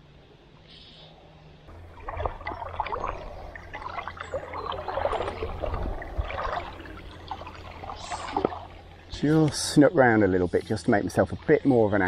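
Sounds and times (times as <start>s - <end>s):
river water splashing: 1.7s - 9.6s.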